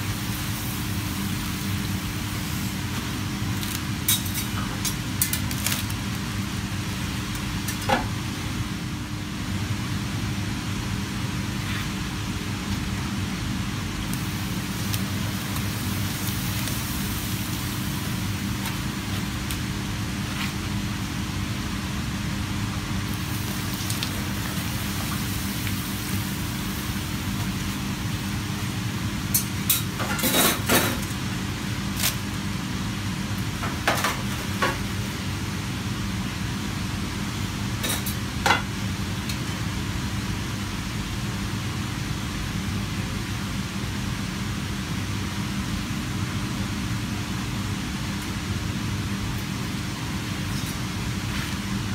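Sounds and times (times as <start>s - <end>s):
food sizzling in hot oil: 0.0s - 8.0s, 14.0s - 20.3s, 22.9s - 31.1s
low kitchen hum: 0.0s - 51.9s.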